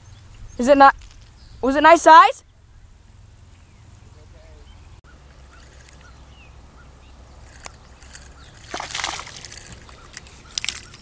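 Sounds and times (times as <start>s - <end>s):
fish splashing at water surface: 8.5s - 11.0s.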